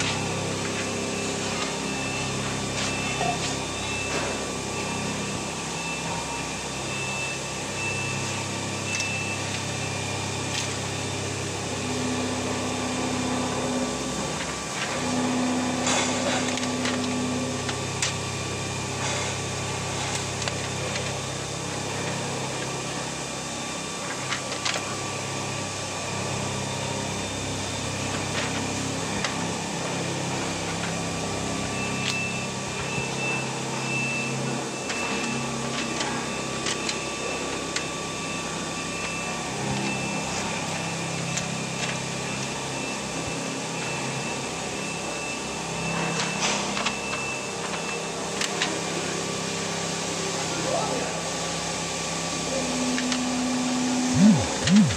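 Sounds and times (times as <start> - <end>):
factory machinery hum: 0.0 - 54.9
high beep: 54.2 - 54.9.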